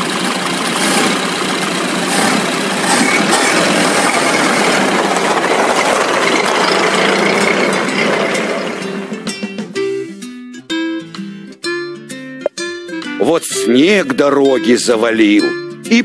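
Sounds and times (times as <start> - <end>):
large truck engine running: 0.0 - 11.4.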